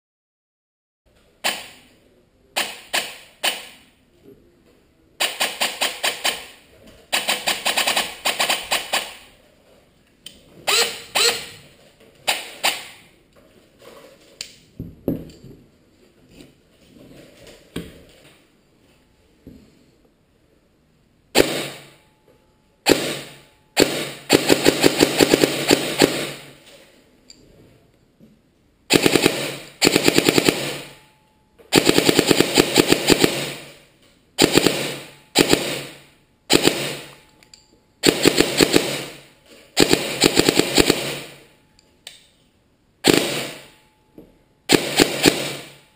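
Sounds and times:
airsoft rifle firing: 1.4s - 1.9s, 2.6s - 3.9s, 5.2s - 9.3s, 10.7s - 11.6s, 12.2s - 13.1s, 21.3s - 22.0s, 22.8s - 26.6s, 28.9s - 31.1s, 31.7s - 37.2s, 38.0s - 41.5s, 43.0s - 43.8s, 44.7s - 45.9s.

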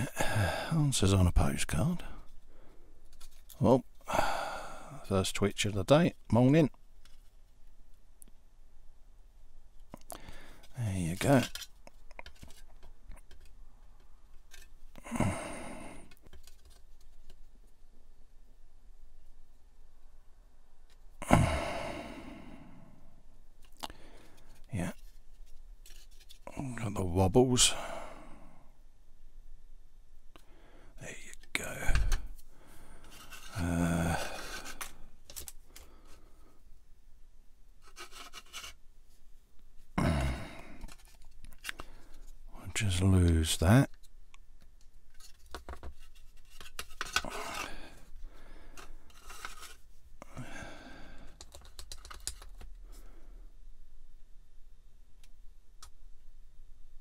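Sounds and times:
hands handling plastic model: 1.3s - 4.0s, 5.2s - 8.4s, 9.7s - 15.0s, 15.9s - 17.9s, 23.6s - 27.0s, 31.1s - 36.4s, 37.7s - 40.0s, 40.7s - 50.3s, 51.2s - 53.0s
breathy exhale: 4.1s - 5.0s, 21.2s - 23.1s, 40.0s - 40.9s, 50.2s - 51.4s
plastic parts clicking and tapping: 9.8s - 14.8s, 16.0s - 17.4s, 34.3s - 35.9s, 43.9s - 47.3s, 51.2s - 52.8s
faint scraping: 31.0s - 36.3s.

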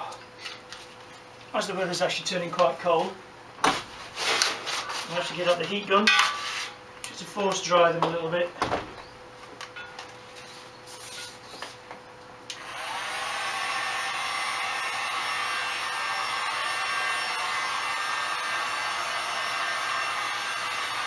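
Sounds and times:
heat gun clicks: 12.5s - 12.7s
heat gun fan blowing: 12.5s - 21.0s.

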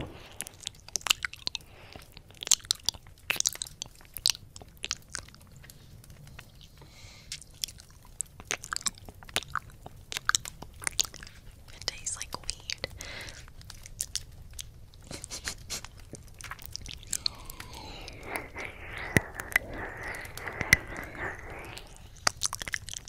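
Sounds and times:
wet mouth clicks and pops: 7.3s - 11.3s, 16.0s - 23.0s.

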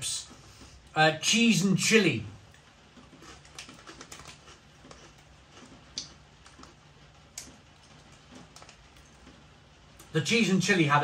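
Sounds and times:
person chewing crisps: 2.4s - 10.2s.

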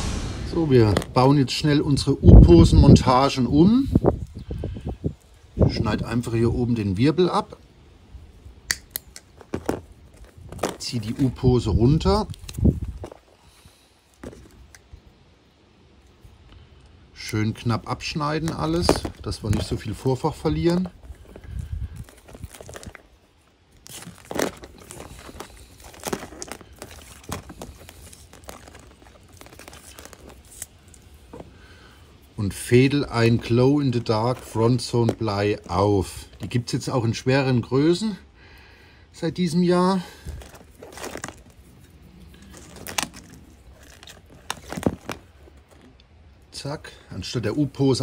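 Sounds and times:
rustling of fishing tackle: 9.2s - 37.7s, 39.3s - 48.0s.

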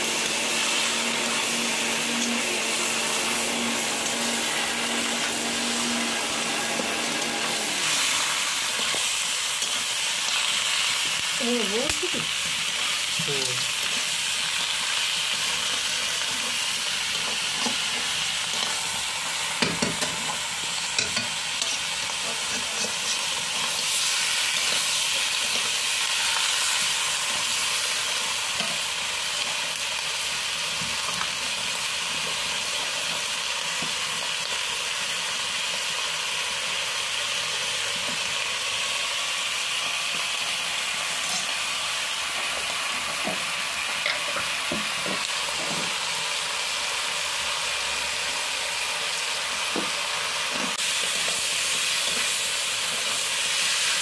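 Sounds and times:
meat sizzling in a wok: 0.0s - 54.0s
metal spatula scraping pan: 21.0s - 24.0s.

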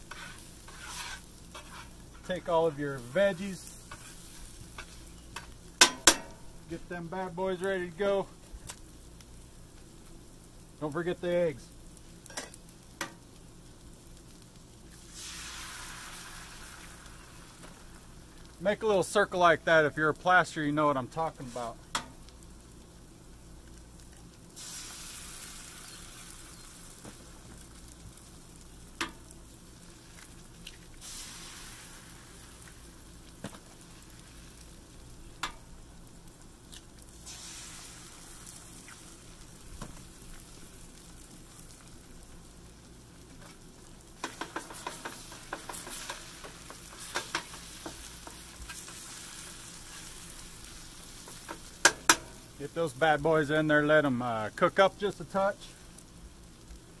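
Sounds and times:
utensil clicking on griddle: 0.0s - 2.0s, 44.2s - 50.1s, 51.2s - 52.4s
eggs sizzling on griddle: 0.0s - 57.0s.

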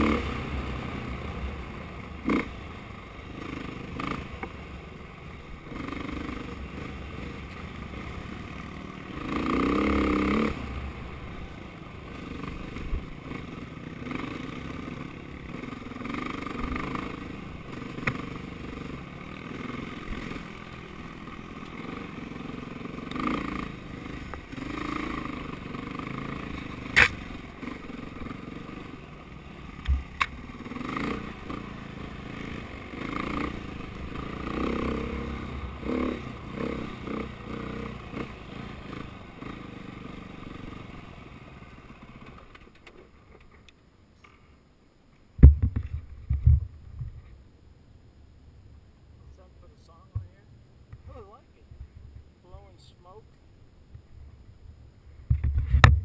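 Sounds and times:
dirt bike engine revving: 0.0s - 42.3s
bike striking rocks: 26.9s - 27.2s, 45.4s - 46.7s.

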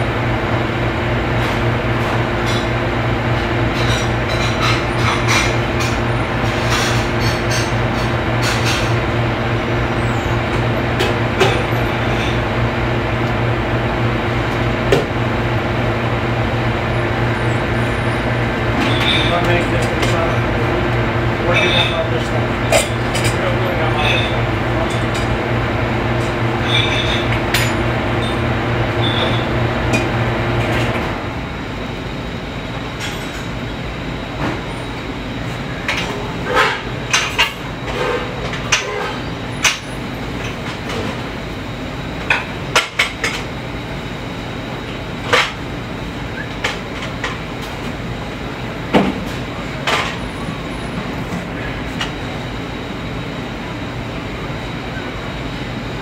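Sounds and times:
low machine hum: 0.0s - 56.0s
utensils and pans clanking: 3.7s - 9.0s, 18.8s - 20.5s, 21.4s - 25.3s, 26.6s - 28.4s.

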